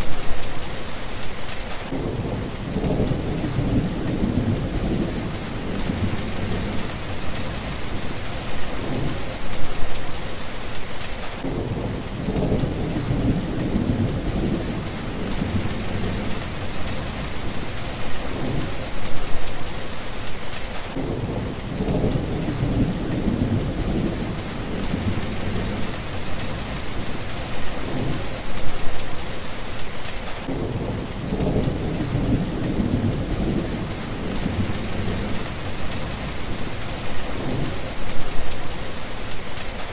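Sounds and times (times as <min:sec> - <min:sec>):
heavy rain pouring: 0:00.0 - 0:39.9
thunder rumbling: 0:01.9 - 0:09.5, 0:11.4 - 0:19.4, 0:20.9 - 0:28.4, 0:30.4 - 0:38.5.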